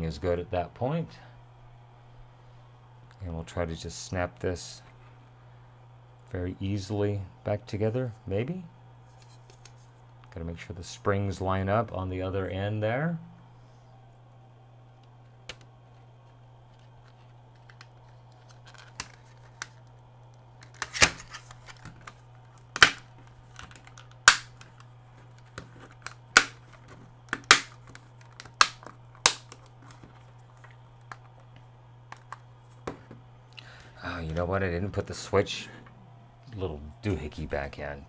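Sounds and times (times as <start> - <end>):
plastic clips clicking into place: 20.6 - 30.0.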